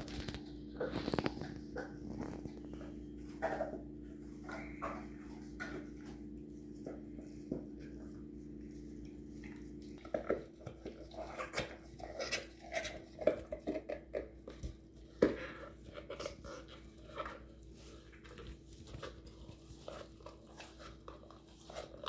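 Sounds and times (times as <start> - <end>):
steady low hum: 0.0 - 22.0
dog chewing: 9.0 - 22.0.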